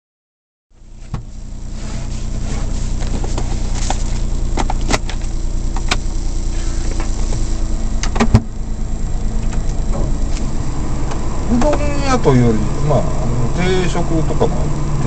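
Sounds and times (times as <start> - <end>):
truck engine idling: 0.7 - 15.0
gear lever clunk: 8.0 - 8.5.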